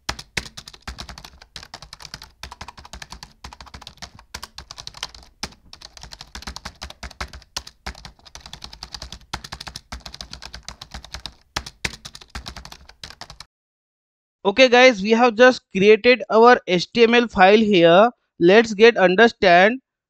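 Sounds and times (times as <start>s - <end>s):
typing on computer keyboard: 0.0s - 13.5s.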